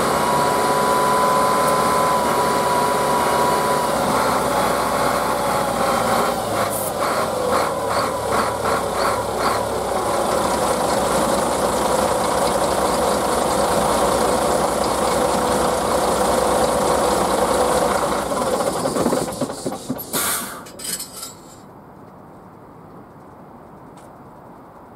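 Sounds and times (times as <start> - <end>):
bus engine running: 0.0 - 21.5.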